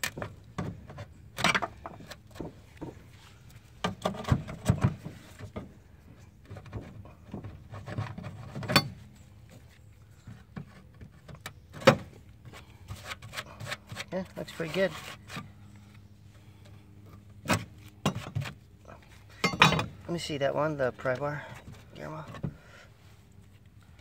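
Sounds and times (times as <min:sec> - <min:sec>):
pry bar scraping caulking: 0:12.0 - 0:15.9.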